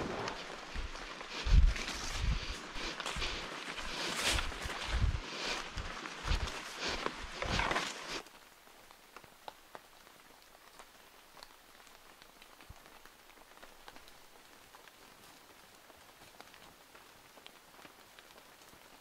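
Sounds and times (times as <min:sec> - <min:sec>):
footsteps through undergrowth: 0:00.0 - 0:08.4
rain hiss: 0:00.0 - 0:19.0
raindrops ticking on leaves: 0:00.0 - 0:19.0.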